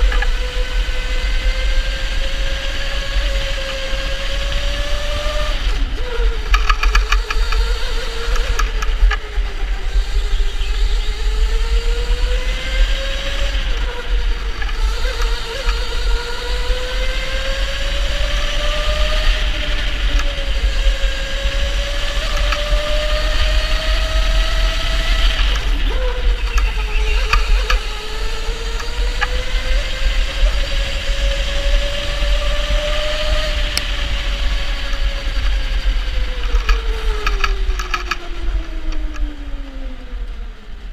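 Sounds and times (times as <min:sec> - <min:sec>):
electric go-kart motor whining: 0:00.0 - 0:40.9.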